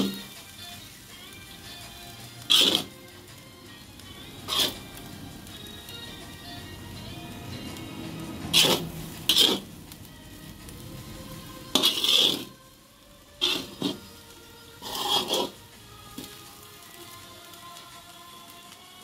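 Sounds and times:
spatula scraping rice in a pan: 0:00.0 - 0:00.3, 0:02.4 - 0:03.0, 0:04.4 - 0:04.9, 0:08.4 - 0:09.8, 0:11.7 - 0:12.6, 0:13.4 - 0:17.2.

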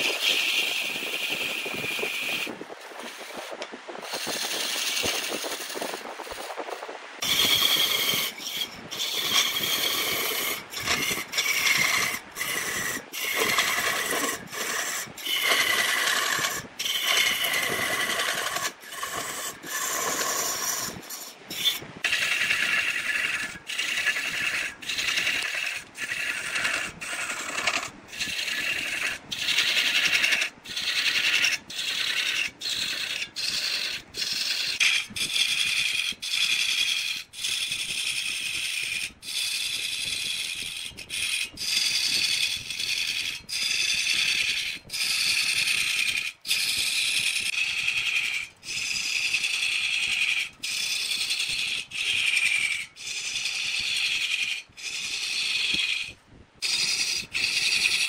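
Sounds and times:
lathe tool scraping wood: 0:00.0 - 0:58.0.

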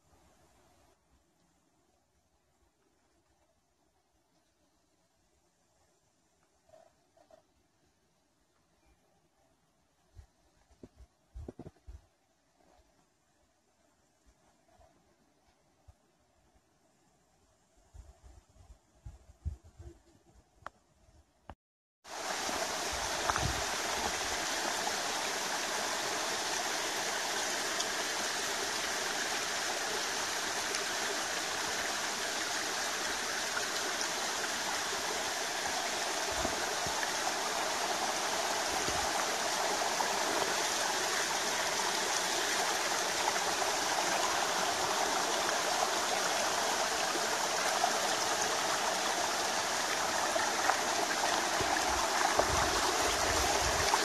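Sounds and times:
stream running over rocks: 0:22.0 - 0:54.0.

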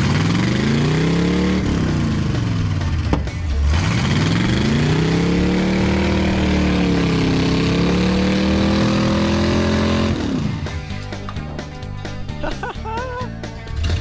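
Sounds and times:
engine revving hard: 0:00.0 - 0:10.7, 0:13.7 - 0:14.0.

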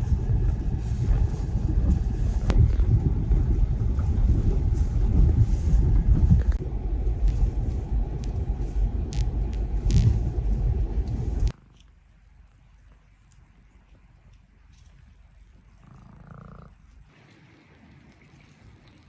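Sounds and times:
car driving on wet road: 0:00.0 - 0:11.5.

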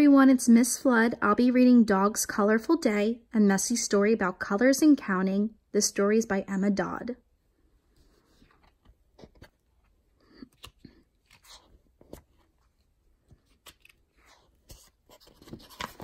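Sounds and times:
paper pages rustling: 0:08.0 - 0:16.0.

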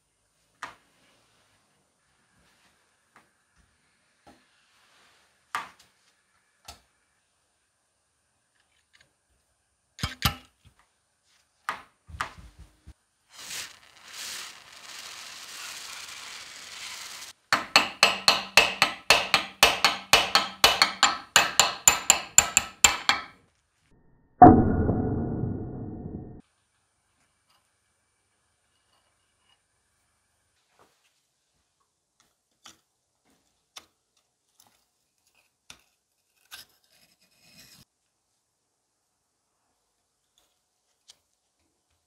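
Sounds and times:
hammer tapping on metal punch: 0:17.6 - 0:23.3
loud ringing metal strike: 0:24.4 - 0:26.4.

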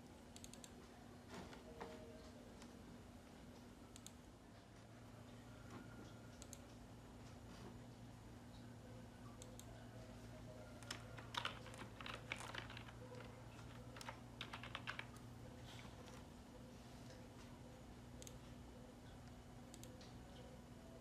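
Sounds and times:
low steady hum: 0:00.0 - 0:21.0
typing on computer keyboard: 0:10.8 - 0:15.2.

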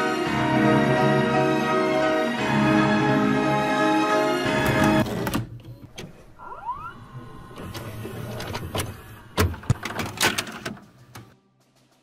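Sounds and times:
short rising squeak: 0:06.4 - 0:07.2.

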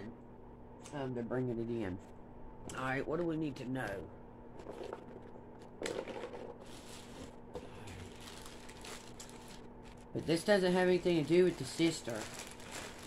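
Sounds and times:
cards rustling: 0:11.0 - 0:13.0.

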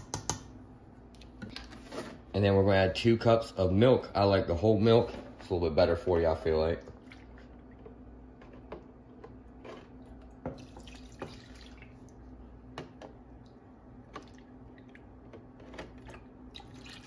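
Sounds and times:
faint steady hum: 0:00.0 - 0:17.0
milk trickling: 0:09.9 - 0:12.4, 0:13.3 - 0:17.0.

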